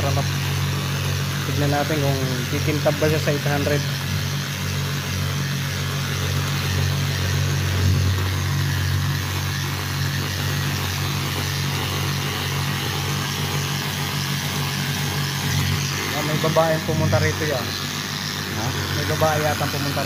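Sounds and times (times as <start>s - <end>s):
electric polisher motor hum: 0.0s - 20.0s
polishing hiss: 0.0s - 20.0s.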